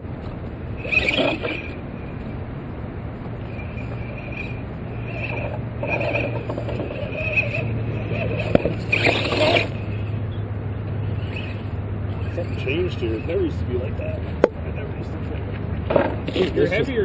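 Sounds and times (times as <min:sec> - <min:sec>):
electric motor humming and whining: 0:00.4 - 0:02.5, 0:03.1 - 0:17.0
scraping: 0:00.8 - 0:02.4, 0:03.4 - 0:13.5.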